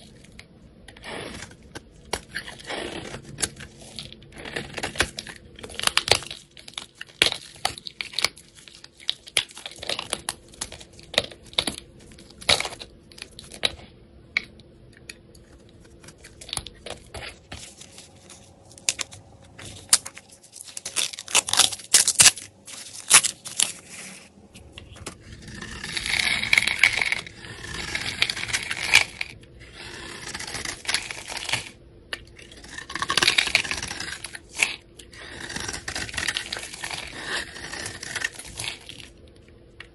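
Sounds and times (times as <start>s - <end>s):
blade rasping scraping soap: 25.2s - 31.7s, 32.4s - 38.9s.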